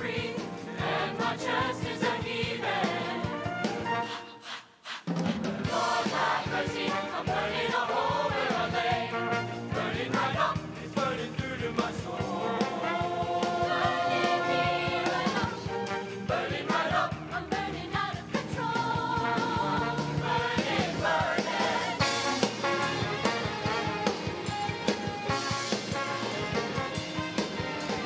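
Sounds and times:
choir singing in harmony: 0:00.0 - 0:23.8
live band playing: 0:00.2 - 0:04.2, 0:05.6 - 0:28.0.

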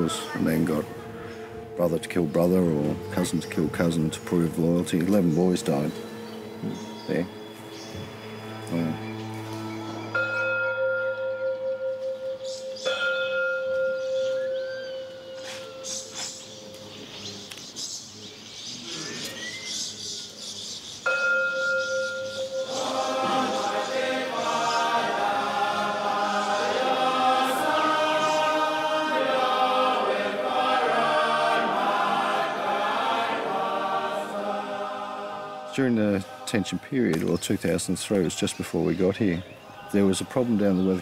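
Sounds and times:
choir singing: 0:00.0 - 0:16.5, 0:21.6 - 0:41.0
ringing bell tone: 0:09.8 - 0:16.8, 0:21.1 - 0:23.4.

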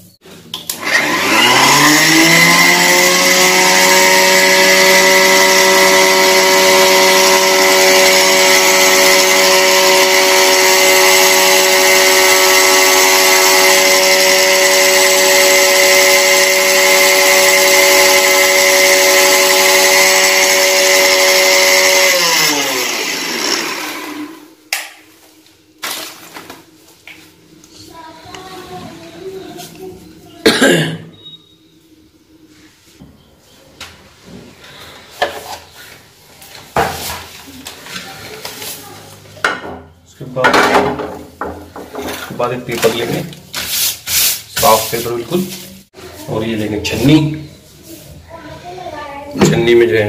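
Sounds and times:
mixer grinder motor whining: 0:00.6 - 0:24.6.

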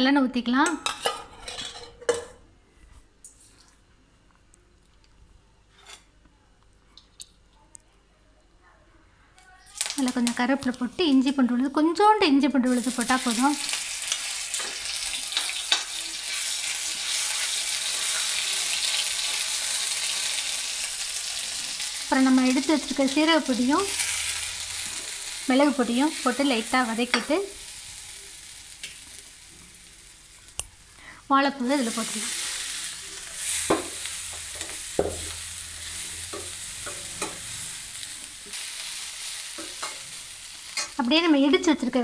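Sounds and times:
metal ladle scraping pan: 0:00.9 - 0:02.3, 0:33.4 - 0:38.0
food sizzling in hot oil: 0:09.7 - 0:11.4, 0:12.6 - 0:42.0.

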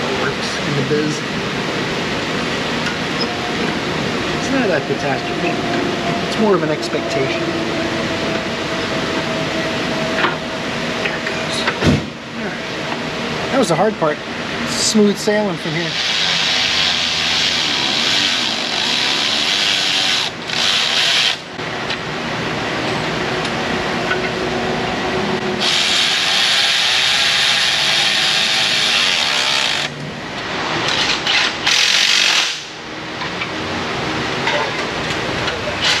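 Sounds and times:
power tool whirring: 0:15.8 - 0:21.5, 0:25.6 - 0:30.0.

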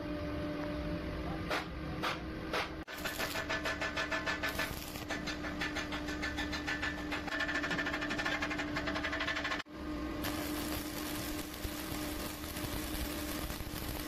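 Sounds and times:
machinery humming: 0:09.7 - 0:14.0.

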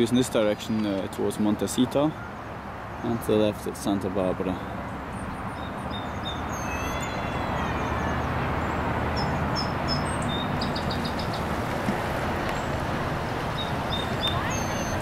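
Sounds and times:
distant motorway traffic rumble: 0:00.0 - 0:15.0
small birds chirping: 0:04.6 - 0:11.5, 0:13.4 - 0:15.0.

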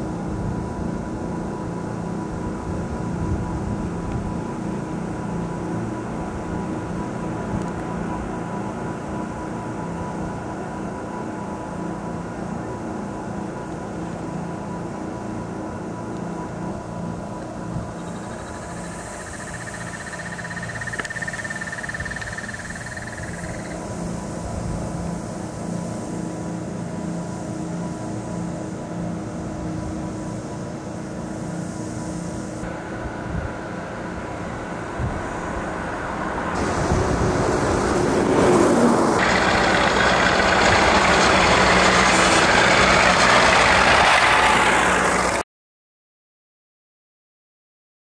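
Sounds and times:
outdoor background noise: 0:00.0 - 0:45.4
tractor engine running: 0:17.8 - 0:23.8, 0:35.7 - 0:45.4
animal high pulsing trill: 0:18.0 - 0:23.8.

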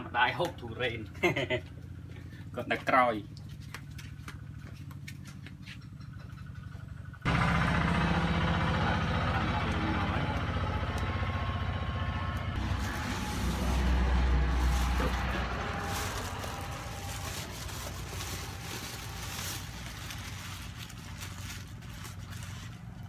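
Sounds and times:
low engine hum: 0:00.0 - 0:23.0
plastic bags crinkling: 0:12.6 - 0:23.0.

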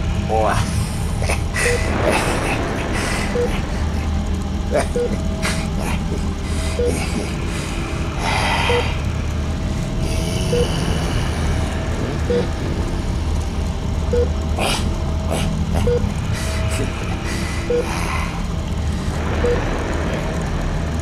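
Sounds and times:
low rumble: 0:00.0 - 0:21.0.

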